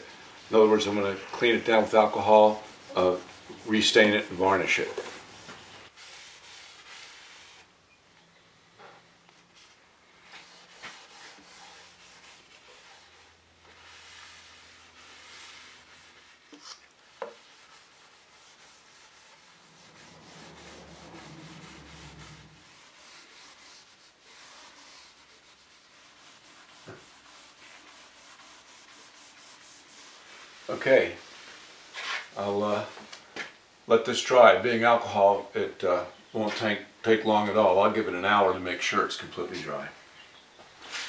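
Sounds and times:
pad rubbing on wood: 0:00.1 - 0:07.7, 0:09.6 - 0:30.8.

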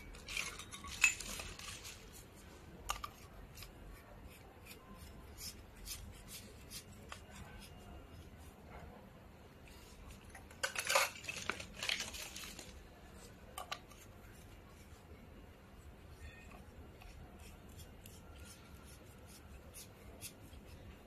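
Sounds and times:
plastic packaging crinkling: 0:00.0 - 0:02.2, 0:10.5 - 0:12.8.

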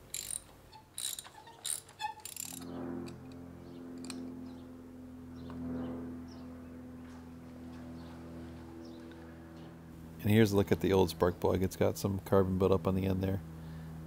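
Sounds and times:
ratchet clicking: 0:00.0 - 0:03.3, 0:04.0 - 0:04.3
steady hum of held pitches: 0:00.0 - 0:14.0.

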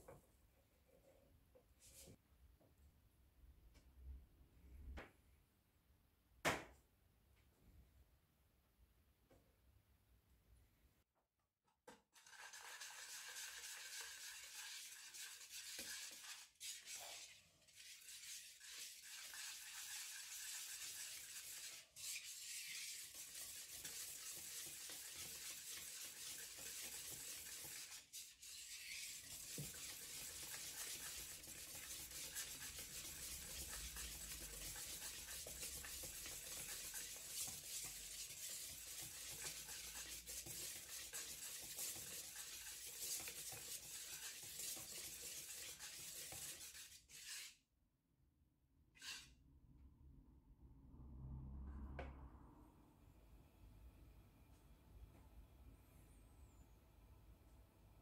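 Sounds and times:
whisk scraping in bowl: 0:12.2 - 0:47.6, 0:49.0 - 0:49.3.

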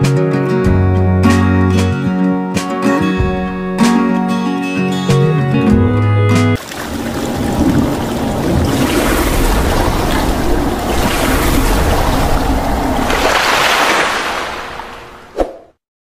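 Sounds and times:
water rushing and splashing: 0:06.6 - 0:15.4.

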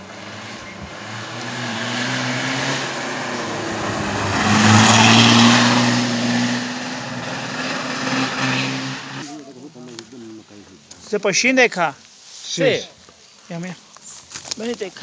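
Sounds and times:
race car engine passing: 0:00.0 - 0:09.2.

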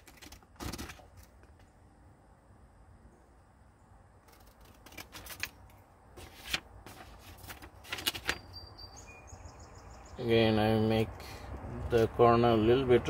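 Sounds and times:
scissors cutting paper: 0:00.0 - 0:01.3, 0:04.3 - 0:05.6
paper rustling: 0:00.0 - 0:01.6, 0:04.3 - 0:08.6.

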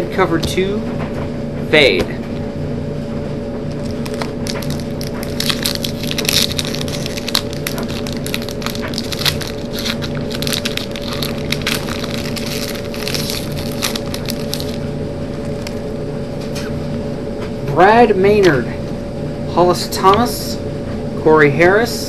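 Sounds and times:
foil wrapper crinkling: 0:03.7 - 0:15.9.

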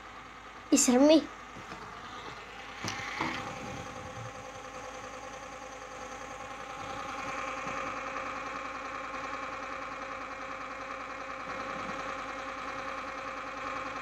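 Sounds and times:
small electric motor whirring: 0:01.6 - 0:05.4.

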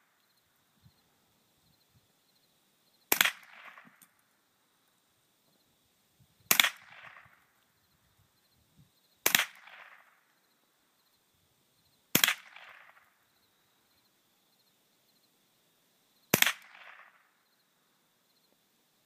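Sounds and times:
rifle shots with echo: 0:03.1 - 0:04.0, 0:06.5 - 0:07.4, 0:09.2 - 0:10.2, 0:12.2 - 0:13.0, 0:16.3 - 0:17.2.

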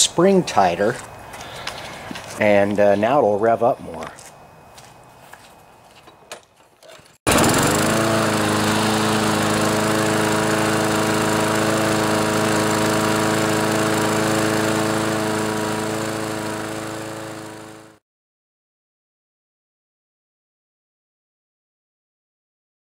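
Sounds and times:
mower engine revving high: 0:07.3 - 0:18.0.

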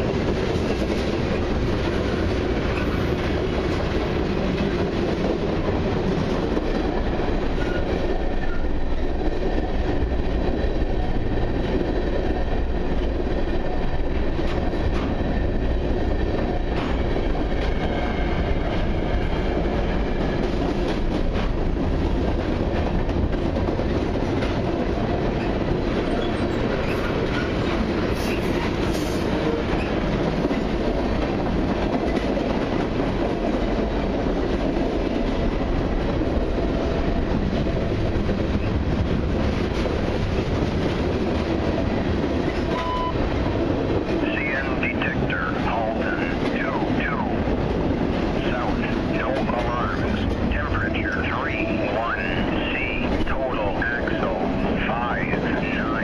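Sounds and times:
steel wheels rumbling on rails: 0:00.0 - 0:56.0.

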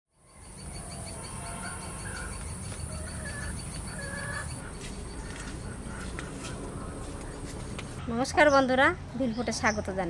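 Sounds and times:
insects chirring: 0:00.2 - 0:06.0
birds whistling: 0:00.4 - 0:07.5.

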